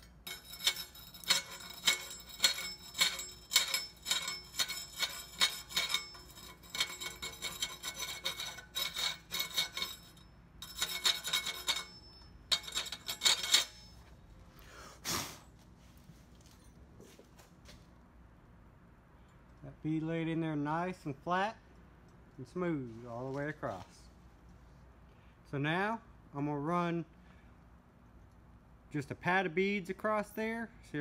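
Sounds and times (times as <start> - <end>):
steel scraper scraping metal plate: 0.0 - 14.0.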